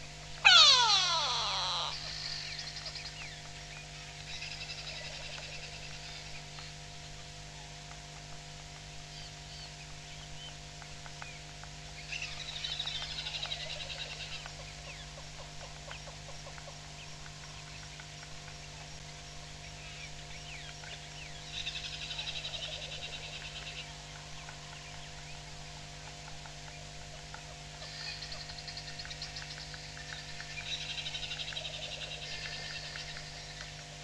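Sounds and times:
steady electrical hum: 0.0 - 34.0
harsh bird alarm calls: 0.4 - 3.3
small bird chirps: 0.4 - 6.4.

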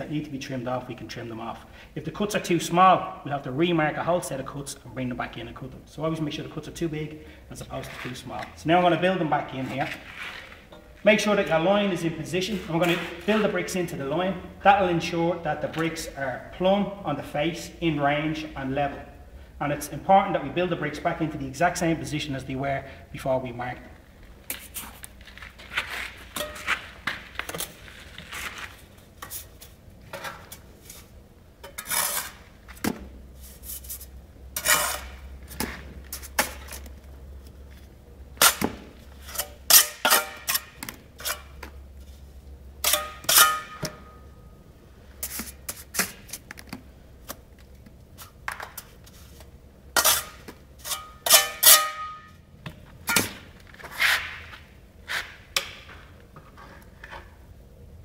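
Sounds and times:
trowel scraping mortar: 9.5 - 10.8, 31.7 - 32.5, 33.4 - 36.9, 45.2 - 46.4, 50.0 - 52.0.

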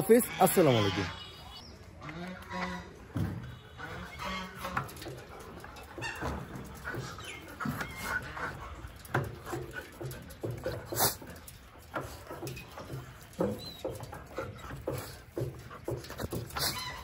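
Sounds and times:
dogs whining and snuffling: 4.1 - 17.0.

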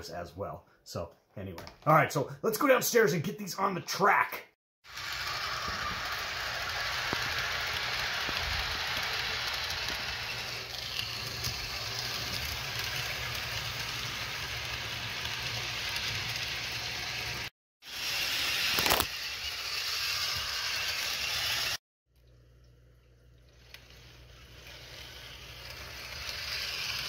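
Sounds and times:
model train wheels on rails: 4.9 - 21.8, 23.5 - 27.0.

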